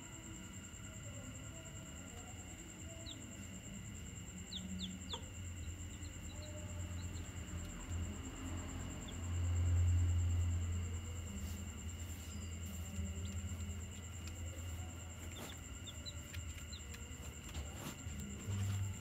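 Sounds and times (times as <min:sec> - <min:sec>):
chicks peeping: 0:04.5 - 0:07.8, 0:12.1 - 0:18.8.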